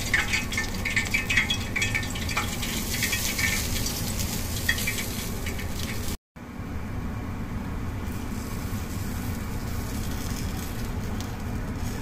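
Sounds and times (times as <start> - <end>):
sauce sizzling on fried fish: 0.0 - 6.2.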